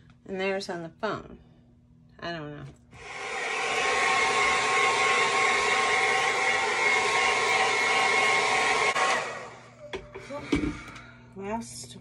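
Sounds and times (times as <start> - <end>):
hair dryer blowing: 3.0 - 11.0.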